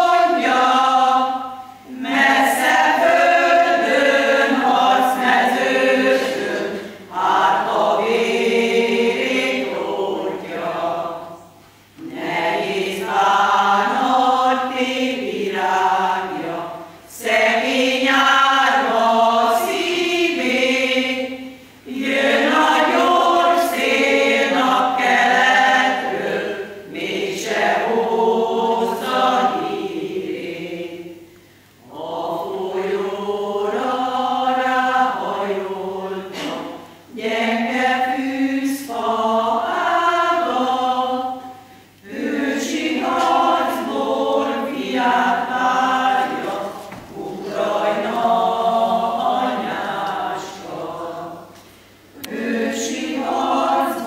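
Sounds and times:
women's choir singing: 0.0 - 54.0.

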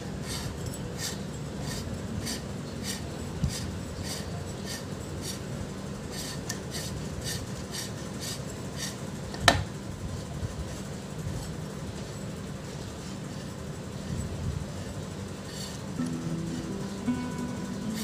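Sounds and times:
metal-on-metal scraping strokes: 0.1 - 5.4.

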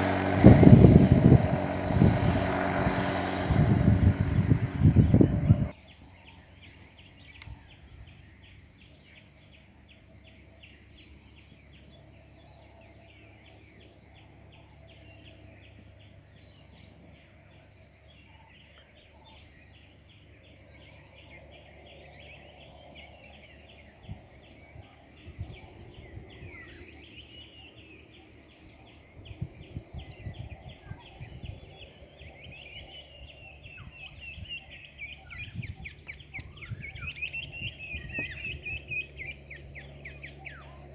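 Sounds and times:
wind thumps on microphone: 0.0 - 5.7, 35.5 - 38.8
birds chirping: 0.0 - 7.8, 21.9 - 40.9
high insect hum: 0.0 - 40.9.

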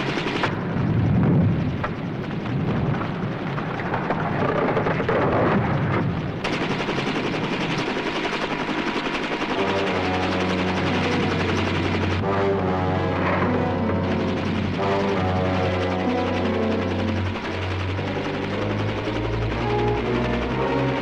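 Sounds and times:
helicopter rotor chatter: 0.0 - 0.9, 1.5 - 21.0
muffled deep rumbling: 0.5 - 6.5.

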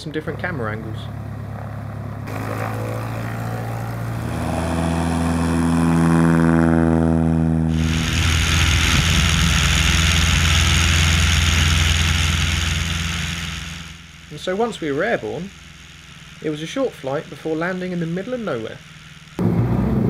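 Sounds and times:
small plane engine and propeller: 0.0 - 20.0
rushing wind: 7.7 - 14.0.

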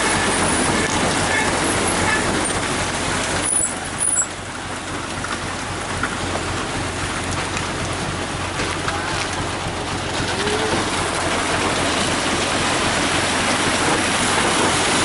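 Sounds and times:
concrete washing down chute: 0.0 - 15.0
truck engine rumbling: 0.0 - 15.0.

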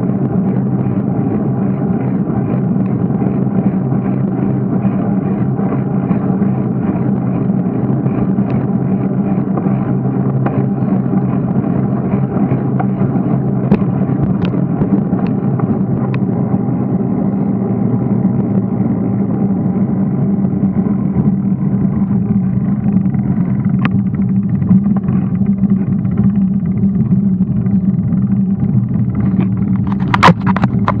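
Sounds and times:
loud clatter: 0.0 - 16.7, 20.7 - 31.0
bicycle wind and tyre rumble: 0.0 - 31.0
sharp clicks from bumps: 29.2 - 31.0.

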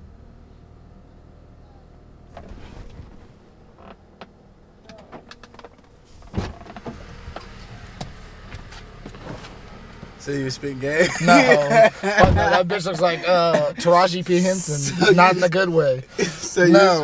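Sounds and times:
car engine humming: 0.0 - 17.0
heavy thump: 12.2 - 12.6.

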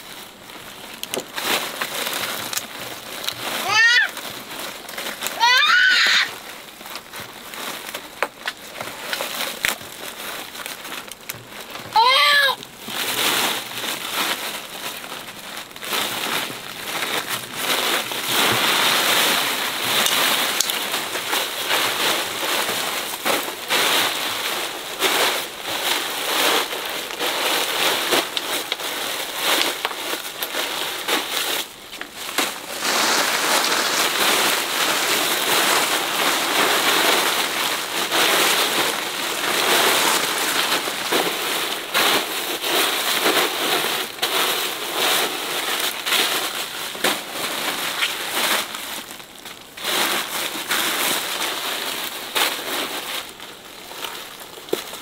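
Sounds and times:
plastic tarp rustling: 0.0 - 55.0
steady rain: 0.0 - 55.0
high voice calling out: 3.6 - 4.2, 5.4 - 6.3, 11.9 - 12.6.

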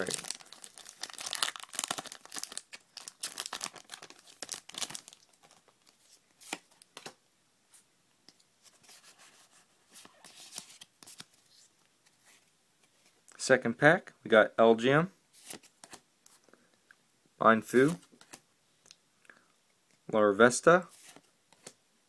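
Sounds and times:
foil wrapper crinkling and tearing: 0.0 - 5.8
cards being handled: 5.4 - 7.2, 8.6 - 13.2, 15.4 - 16.4, 17.7 - 18.4, 20.9 - 21.8.

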